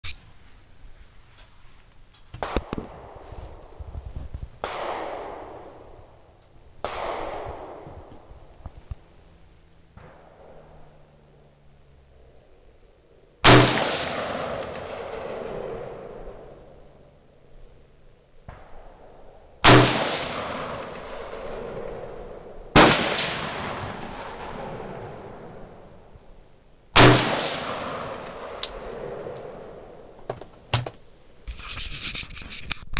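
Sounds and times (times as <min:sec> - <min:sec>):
insect chirr: 0:00.0 - 0:32.9
rifle shots with rolling echo: 0:02.4 - 0:03.8, 0:04.6 - 0:08.7, 0:10.0 - 0:11.0, 0:13.4 - 0:17.7, 0:18.4 - 0:31.2.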